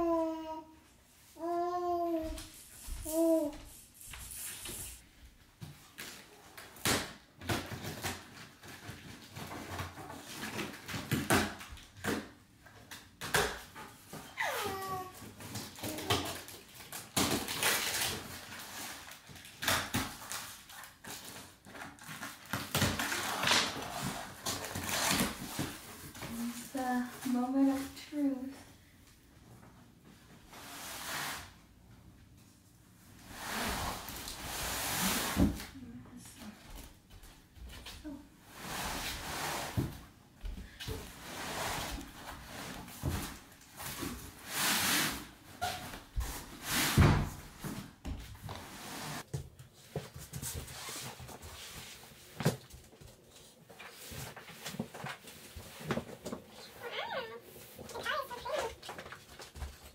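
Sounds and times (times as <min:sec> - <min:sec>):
cardboard rustling and scraping: 0:14.0 - 0:28.4, 0:40.7 - 0:59.9.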